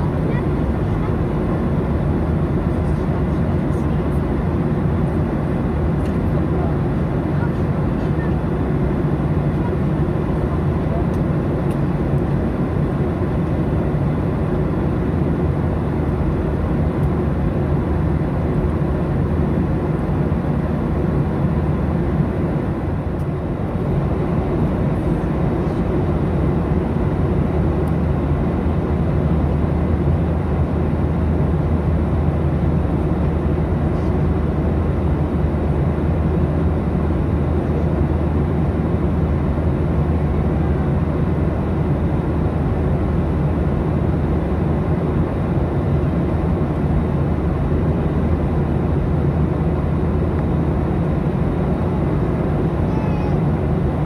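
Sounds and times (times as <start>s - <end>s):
aircraft cabin engine drone: 0.0s - 54.0s.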